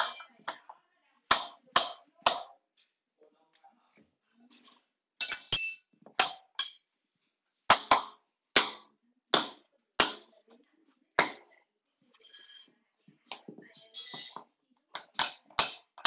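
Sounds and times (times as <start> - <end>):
ringing clink: 5.2 - 6.0.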